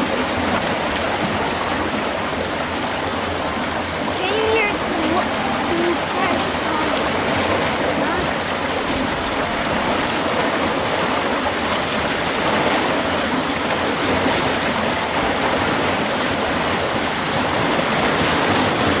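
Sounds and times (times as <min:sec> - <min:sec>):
river water rushing over rapids: 0:00.0 - 0:19.0.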